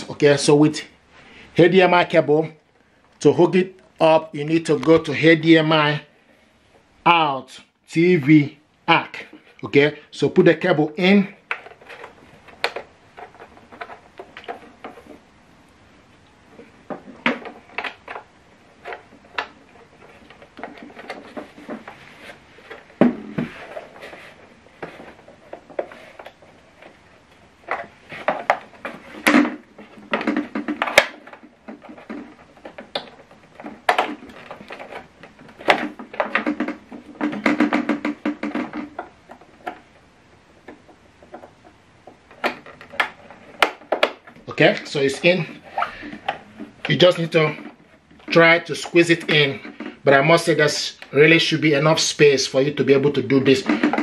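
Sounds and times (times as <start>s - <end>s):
plastic casing shifting: 11.3s - 15.2s, 16.5s - 52.1s, 53.0s - 54.0s.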